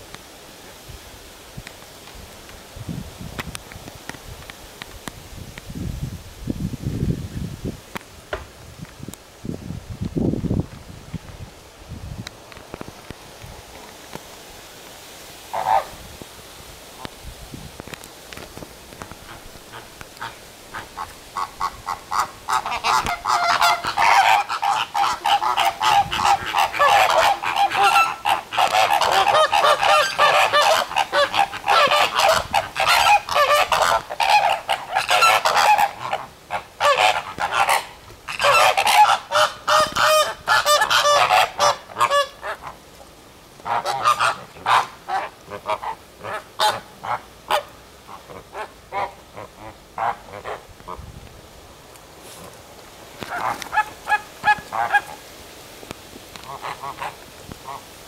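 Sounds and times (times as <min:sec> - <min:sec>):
flamingos honking: 0:15.5 - 0:16.0, 0:19.0 - 0:42.9, 0:43.6 - 0:51.0, 0:53.2 - 0:55.2, 0:56.4 - 0:57.9.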